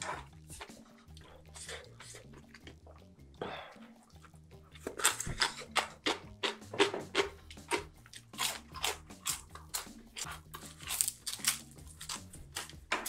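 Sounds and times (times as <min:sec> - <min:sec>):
person chewing crunchy food: 0:00.0 - 0:03.3, 0:03.9 - 0:13.0.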